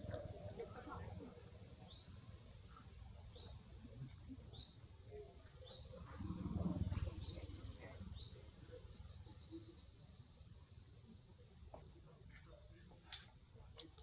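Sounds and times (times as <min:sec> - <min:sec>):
bird chirping: 0:05.6 - 0:06.1, 0:07.1 - 0:11.2.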